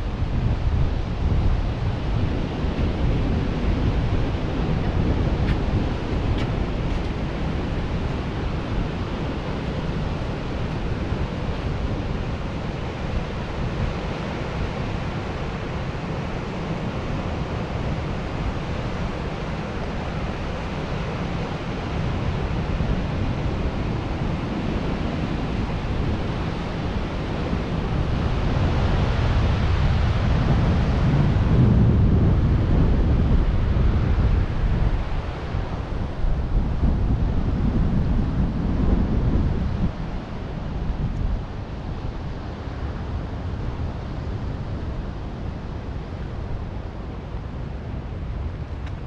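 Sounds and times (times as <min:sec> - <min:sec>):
ocean surf: 0:00.0 - 0:49.0
wind buffeting microphone: 0:00.0 - 0:49.0.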